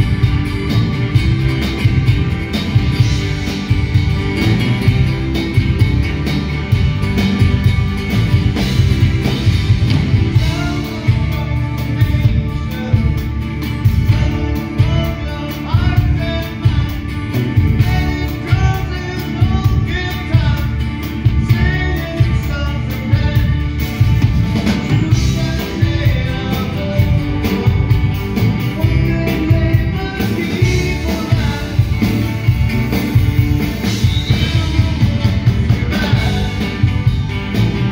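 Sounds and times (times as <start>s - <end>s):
live rock band playing: 0.0s - 37.9s
lead vocal singing: 10.2s - 23.9s, 24.7s - 27.9s, 28.6s - 32.4s, 33.1s - 37.2s.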